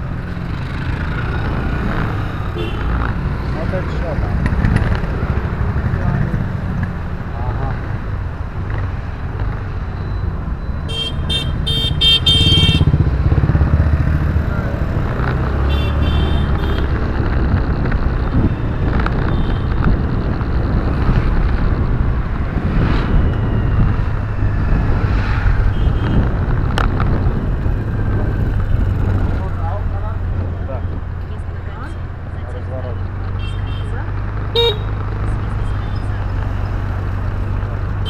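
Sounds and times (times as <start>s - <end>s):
car engine and road rumble: 0.0s - 38.0s.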